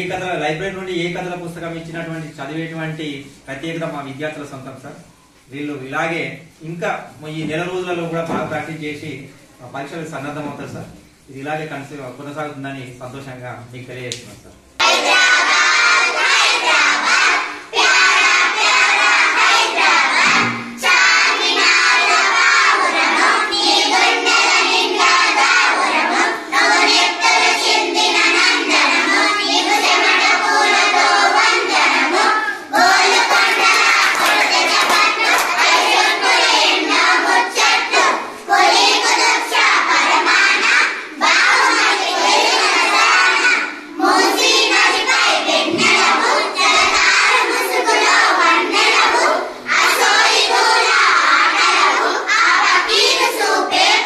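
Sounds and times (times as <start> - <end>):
children singing in unison: 14.8 - 54.0.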